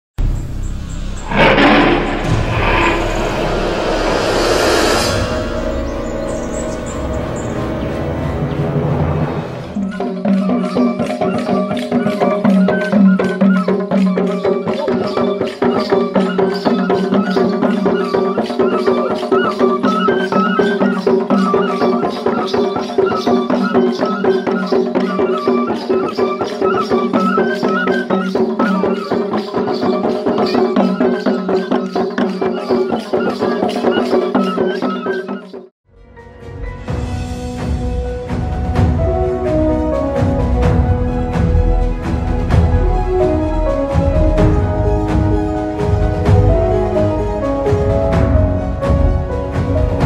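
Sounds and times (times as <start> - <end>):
held low tones: 0.8 - 8.1
fast percussion beat: 9.8 - 35.6.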